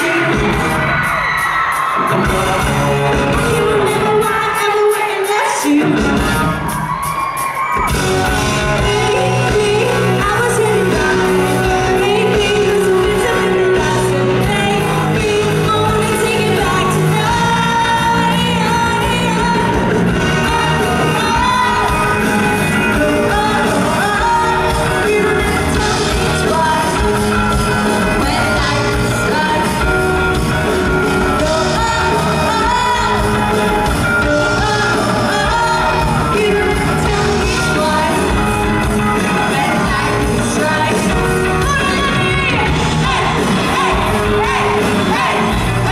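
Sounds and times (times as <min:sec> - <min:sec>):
live rock band playing: 0:00.0 - 0:45.9
woman singing: 0:03.4 - 0:06.2, 0:08.8 - 0:30.0, 0:31.2 - 0:38.5, 0:39.2 - 0:45.9.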